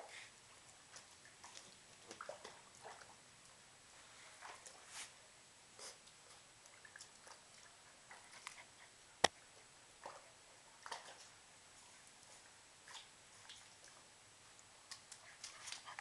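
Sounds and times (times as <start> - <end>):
puppy lapping water: 0.2 - 3.2, 5.8 - 14.1, 14.8 - 16.0.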